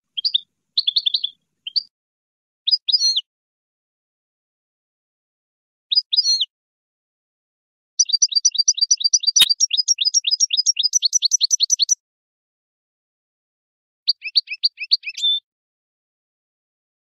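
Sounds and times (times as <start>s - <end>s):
finch twittering song: 0.1s - 1.9s, 5.9s - 6.5s, 8.0s - 12.0s, 14.1s - 15.4s.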